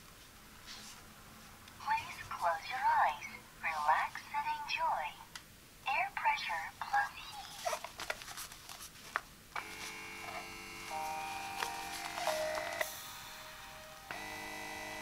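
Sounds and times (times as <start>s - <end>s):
handling clicks and rustle: 7.4s - 12.9s
electric motor hum: 9.6s - 13.1s, 13.9s - 15.0s.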